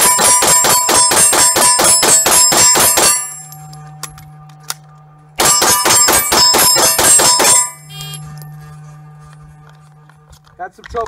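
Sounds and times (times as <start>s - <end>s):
rapid pistol fire: 0.0s - 3.3s, 5.4s - 7.7s
bullets ringing on steel target: 0.0s - 4.3s, 5.4s - 8.4s.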